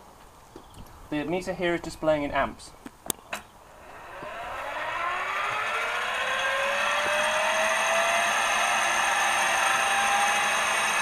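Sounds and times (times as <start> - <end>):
starter motor whine: 3.7 - 11.0.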